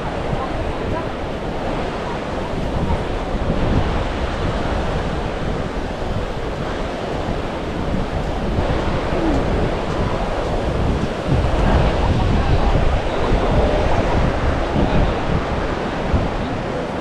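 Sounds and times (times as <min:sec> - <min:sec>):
ocean surf washing onto beach: 0:00.0 - 0:17.0
wind buffeting microphone: 0:00.0 - 0:17.0.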